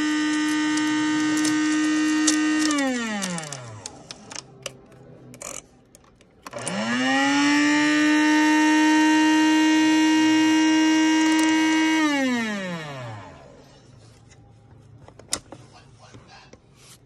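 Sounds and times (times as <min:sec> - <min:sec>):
grinder motor whine: 0:00.0 - 0:04.1, 0:06.5 - 0:13.6.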